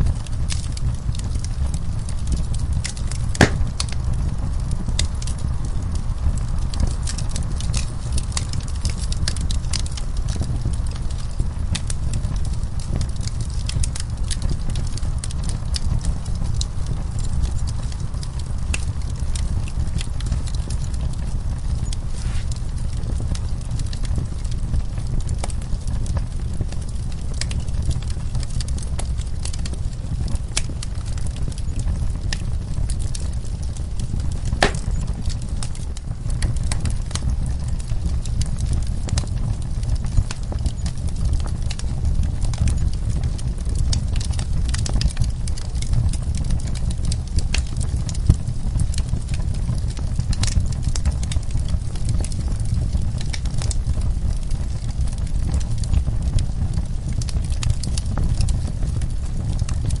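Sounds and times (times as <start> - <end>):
fire crackling and popping: 0.0 - 60.0
low fire rumble: 0.0 - 60.0.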